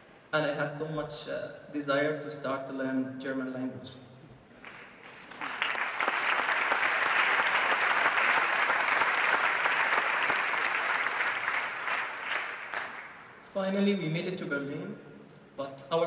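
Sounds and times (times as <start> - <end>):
audience applauding: 4.6 - 13.3.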